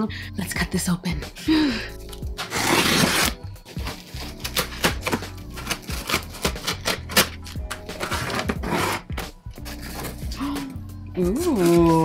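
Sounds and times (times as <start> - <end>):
background music with bass: 0.0 - 12.0
scissors cutting tape and cardboard: 2.2 - 10.7, 11.4 - 12.0.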